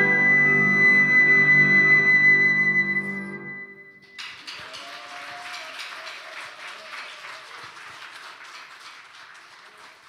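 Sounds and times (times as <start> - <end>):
audience applauding: 4.0 - 10.0.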